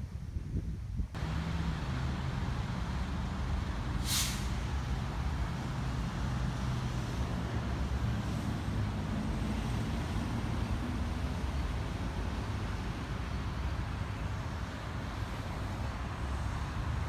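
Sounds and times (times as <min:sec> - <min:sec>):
city street traffic: 0:01.1 - 0:17.0
heavy vehicle engine running: 0:01.2 - 0:17.0
air brakes hissing: 0:03.6 - 0:04.9.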